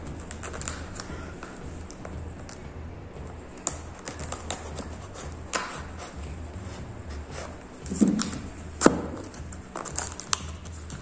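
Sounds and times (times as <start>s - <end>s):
knife scraping cardboard: 3.7s - 11.0s.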